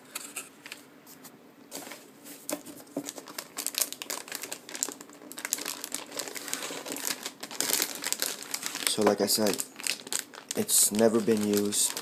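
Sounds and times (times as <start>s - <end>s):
anti-static bag crinkling: 1.7s - 12.0s.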